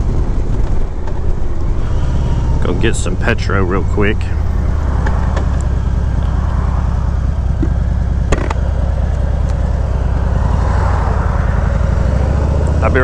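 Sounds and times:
motorcycle engine throbbing: 0.0s - 13.0s.

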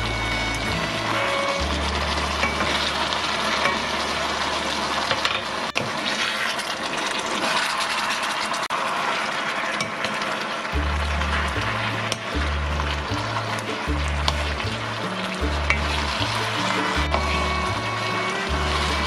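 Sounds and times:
food sizzling in a wok: 0.0s - 19.0s
wooden spatula scraping wok: 10.8s - 19.0s.

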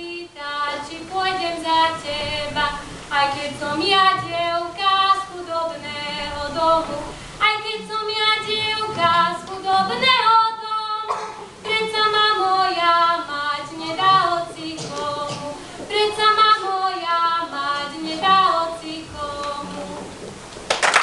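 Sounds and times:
woman singing folk song: 0.0s - 20.1s.

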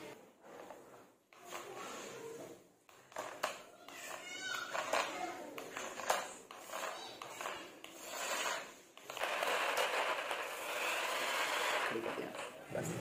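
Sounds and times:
toy car wheels clattering on stone: 2.9s - 12.6s
toy car motor whirring: 3.0s - 12.6s.

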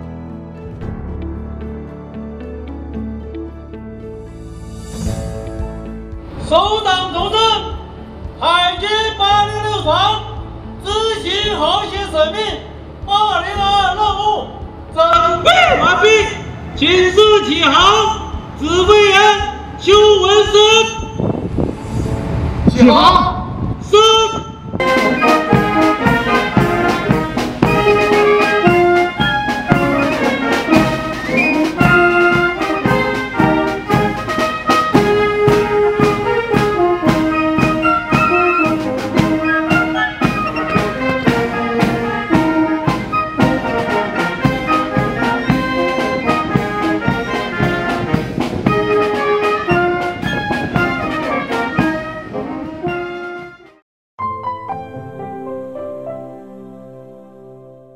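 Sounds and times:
steady drum beat: 24.8s - 52.1s
military brass band playing: 24.8s - 53.8s.

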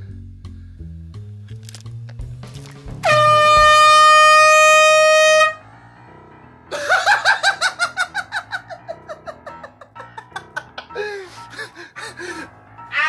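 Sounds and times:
air horn blast: 3.0s - 5.8s
quick rhythmic laughter: 6.7s - 12.3s.

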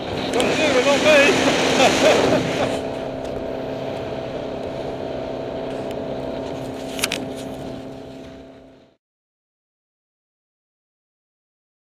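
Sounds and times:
motorboat engine running: 0.0s - 9.0s.

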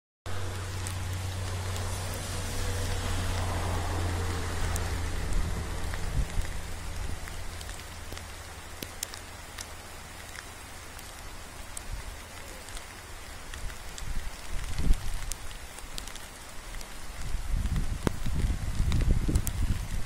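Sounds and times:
low rumble: 0.3s - 8.6s
steady rain falling: 0.3s - 20.0s.

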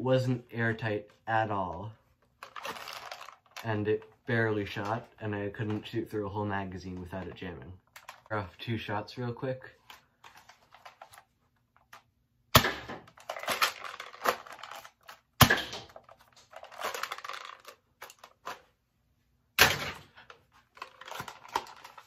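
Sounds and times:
plastic mechanism clatter: 2.4s - 6.0s, 6.9s - 8.4s, 9.8s - 18.7s, 19.6s - 22.0s
foam-dart blaster shots: 12.6s - 13.0s.

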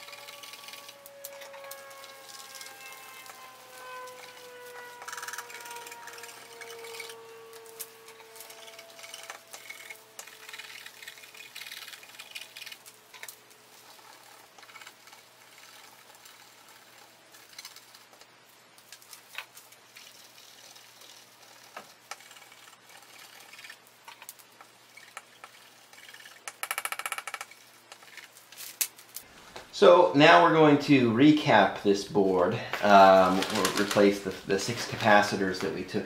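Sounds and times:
scratching on circuit board: 0.0s - 18.2s, 20.0s - 28.4s
rasping scrape: 0.0s - 18.3s, 18.9s - 26.6s.

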